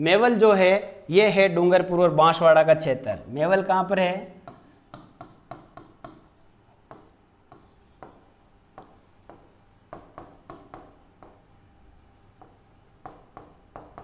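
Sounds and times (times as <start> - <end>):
pen tapping and scratching on board: 4.4 - 11.6, 12.2 - 14.0.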